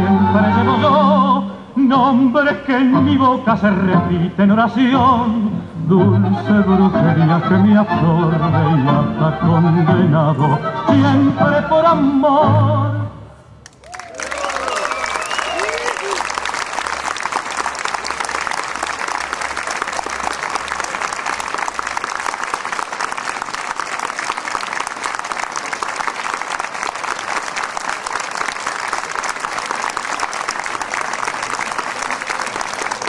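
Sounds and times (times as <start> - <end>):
audience applauding: 13.6 - 33.0.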